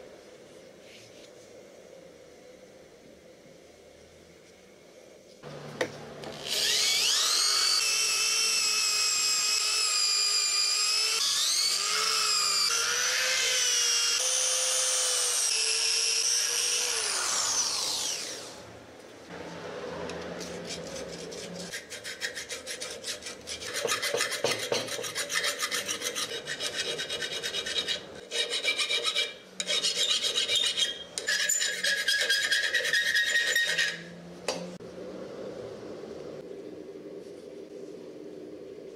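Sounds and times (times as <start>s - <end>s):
scraping steel with squeal: 20.4s - 34.2s.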